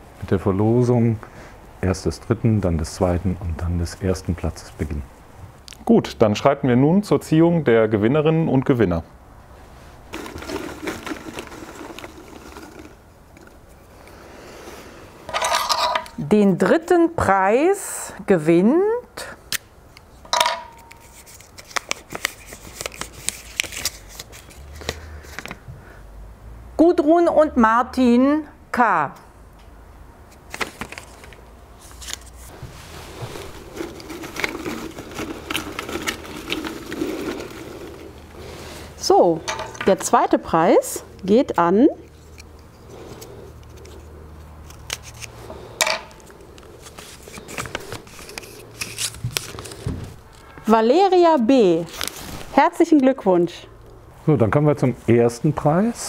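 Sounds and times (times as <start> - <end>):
paper crackling and rustling: 10.0 - 13.6, 20.9 - 25.6, 30.3 - 38.7, 42.1 - 50.6, 51.4 - 52.6.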